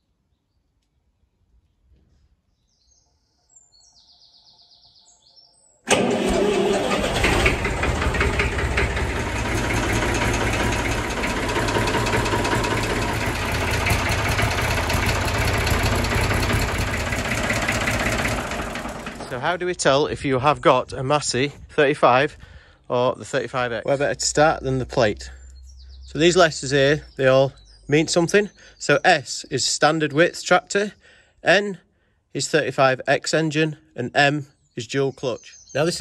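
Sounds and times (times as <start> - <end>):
faint bird chirps: 0.0 - 5.8, 25.2 - 29.2
tractor diesel engine running: 5.9 - 22.4.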